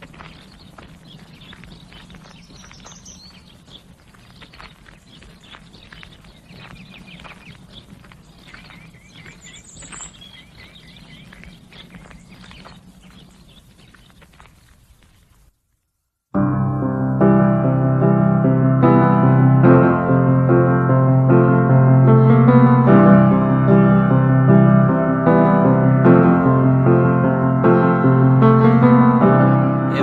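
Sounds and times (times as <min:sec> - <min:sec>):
birds chirping: 0:00.0 - 0:15.5
footsteps on leaves: 0:00.0 - 0:15.5
bird trill: 0:00.2 - 0:14.2.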